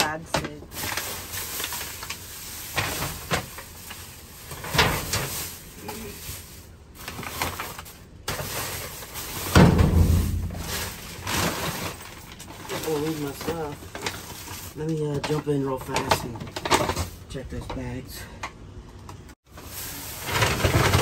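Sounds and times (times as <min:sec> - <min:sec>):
plastic trash bags rustling: 0:00.0 - 0:17.4, 0:19.5 - 0:21.0
heavy thump: 0:09.5 - 0:11.4
knocks in metal dumpster: 0:09.5 - 0:11.6.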